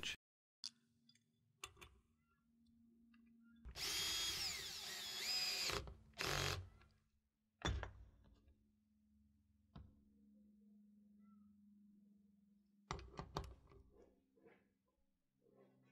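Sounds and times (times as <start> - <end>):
cordless drill whine: 3.7 - 6.7.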